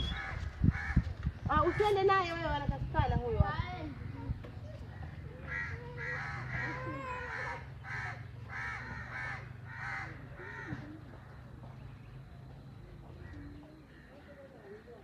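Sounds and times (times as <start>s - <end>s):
bird calling: 0.0s - 1.0s.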